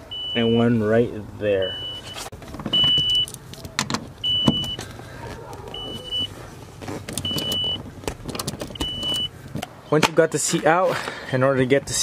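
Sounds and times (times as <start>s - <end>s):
car warning chime beeping: 0.0s - 1.0s, 1.6s - 3.3s, 4.2s - 4.8s, 5.7s - 6.3s, 7.2s - 7.8s, 8.7s - 9.3s.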